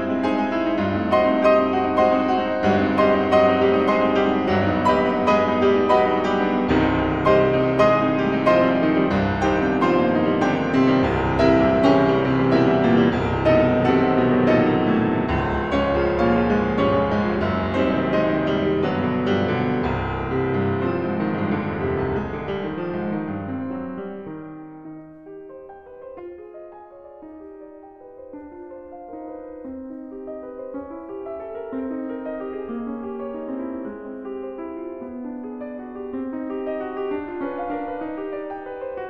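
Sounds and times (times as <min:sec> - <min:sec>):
piano music: 0:00.0 - 0:39.0.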